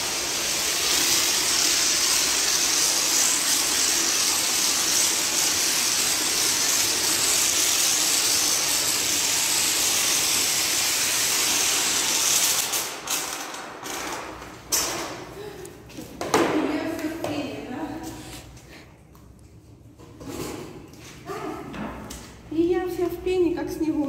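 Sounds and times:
foam lance spray hissing: 0.0 - 13.1.

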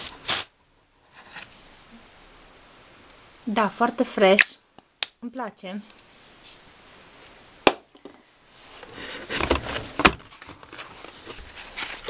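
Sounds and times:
rummaging in cardboard box: 8.6 - 12.0.

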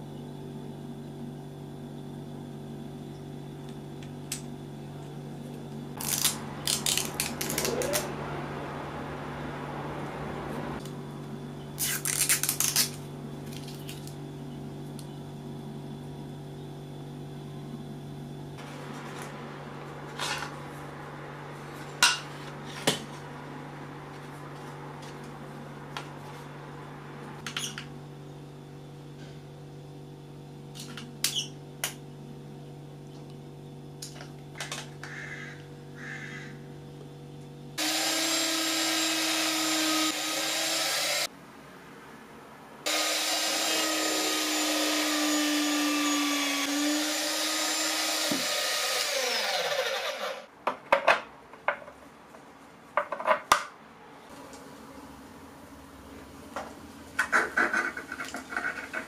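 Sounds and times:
low steady hum: 0.0 - 37.8
drill press drilling plastic: 42.9 - 50.5.

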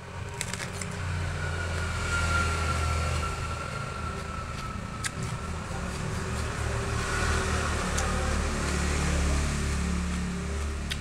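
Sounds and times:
cucumber being chewed: 0.2 - 1.0, 4.2 - 9.0, 9.7 - 11.0.

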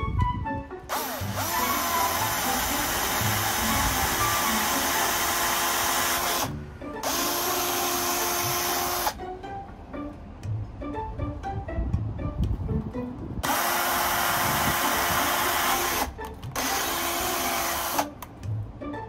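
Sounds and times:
cordless drill boring into wood: 0.9 - 9.2, 13.4 - 18.1.

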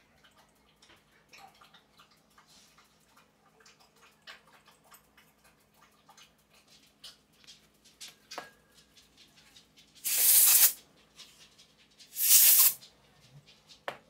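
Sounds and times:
aerosol spray hissing: 10.0 - 10.8, 12.2 - 12.8
small metal parts clicking: 10.0 - 10.8, 12.1 - 12.8.

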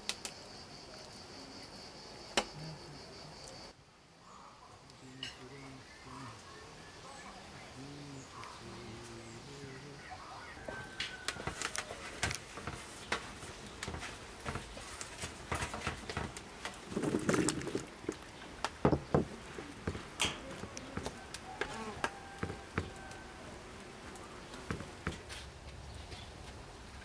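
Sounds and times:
hands spreading potatoes knocking: 10.6 - 23.0.

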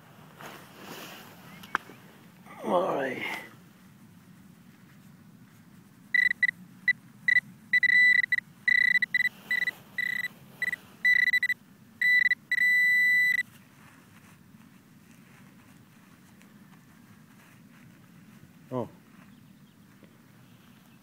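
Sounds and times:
metal detector beeping: 6.2 - 13.5.

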